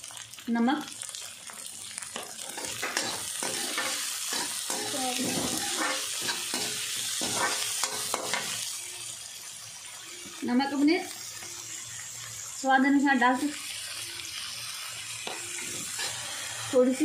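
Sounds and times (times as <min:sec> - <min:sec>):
vegetables sizzling in oil: 0:00.0 - 0:17.0
skimmer scraping against pan: 0:02.5 - 0:08.4, 0:15.3 - 0:16.8.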